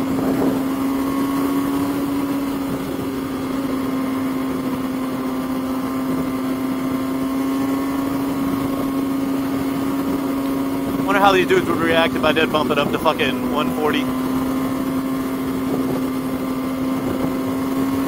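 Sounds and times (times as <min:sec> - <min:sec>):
motorcycle engine at high rpm: 0:00.0 - 0:18.0
wind and road noise: 0:00.0 - 0:18.0.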